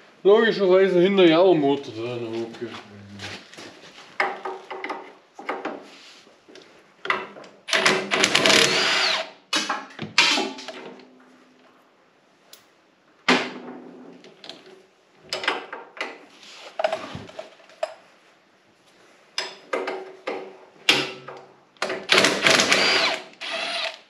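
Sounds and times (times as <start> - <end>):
tools knocking and clattering: 4.2 - 5.8, 15.3 - 16.2, 19.4 - 22.2
power drill running: 8.2 - 9.3, 22.1 - 24.0.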